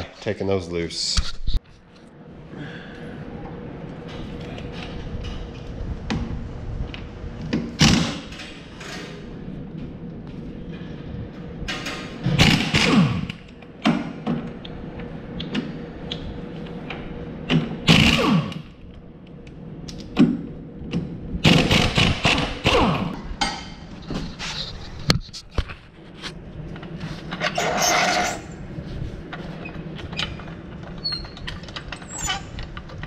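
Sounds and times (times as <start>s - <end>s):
pneumatic impact wrench bursts: 12.2s - 13.4s, 17.9s - 18.6s, 21.4s - 23.1s.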